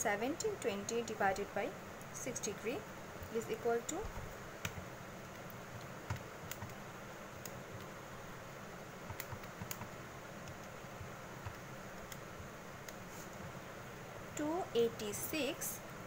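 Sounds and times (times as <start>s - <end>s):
faint steady hiss: 0.0s - 16.0s
calculator keys clicking: 9.1s - 12.2s.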